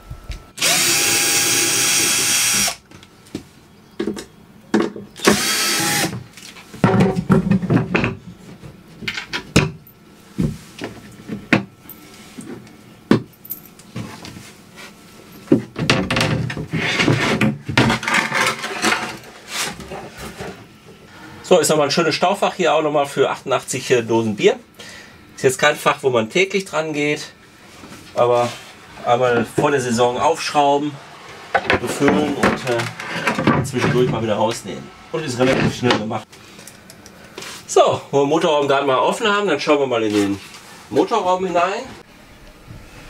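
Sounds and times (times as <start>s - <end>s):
cordless drill backing out screws: 5.2s - 6.2s
wooden floorboard knocks and clatter: 6.8s - 8.2s.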